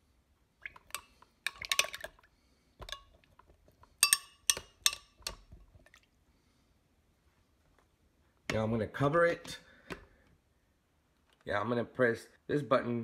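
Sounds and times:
metal spoon clinking on glass jar: 0:04.0 - 0:05.4.

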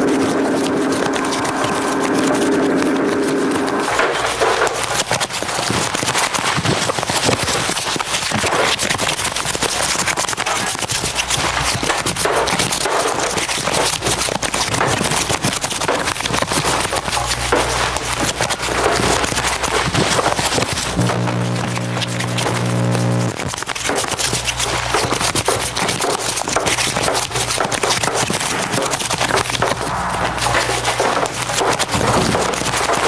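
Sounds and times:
packaging crinkling: 0:00.1 - 0:33.0
low hum: 0:20.6 - 0:23.4, 0:29.7 - 0:32.3.

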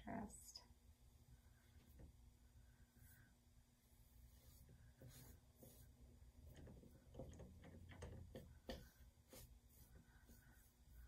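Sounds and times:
paintbrush tapping on canvas: 0:07.1 - 0:09.4.

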